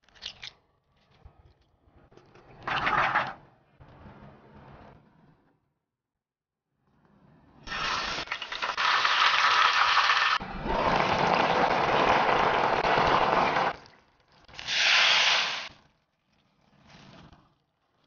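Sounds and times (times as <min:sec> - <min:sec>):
burst of hissing: 0:14.6 - 0:15.8.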